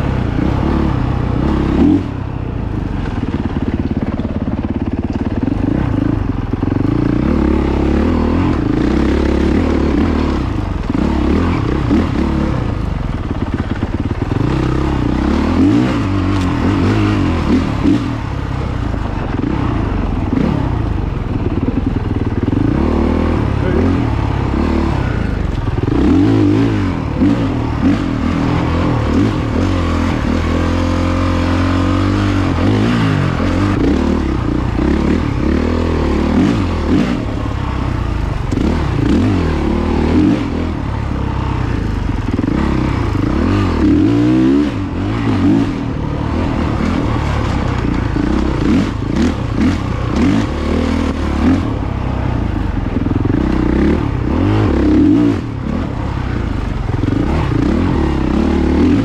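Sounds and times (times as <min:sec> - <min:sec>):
dirt bike engine revving: 0:00.0 - 0:02.3, 0:03.0 - 0:59.0.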